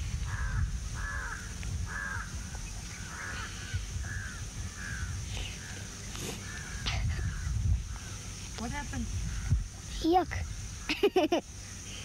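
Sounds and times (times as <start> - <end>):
crow cawing: 0.3 - 2.4, 3.0 - 5.8, 6.4 - 8.2.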